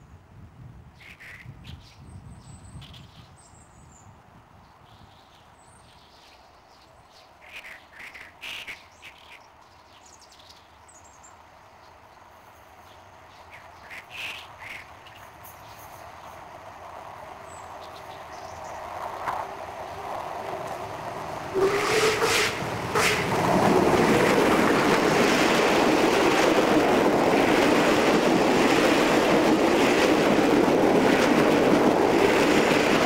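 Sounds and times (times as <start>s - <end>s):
distant steam train: 12.5s - 33.0s
birds calling: 12.9s - 16.4s.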